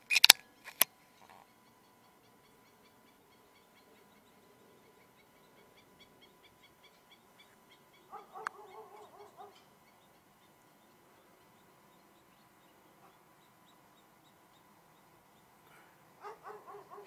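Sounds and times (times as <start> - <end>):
sharp click: 0.0 - 0.9
faint high chirping: 0.4 - 17.0
animal squawking calls: 7.4 - 9.7.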